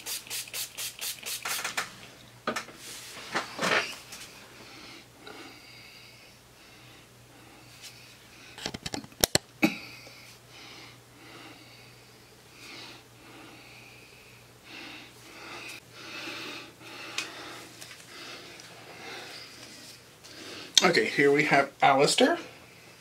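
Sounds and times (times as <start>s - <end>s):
breathing and sniffing: 9.9s - 20.8s.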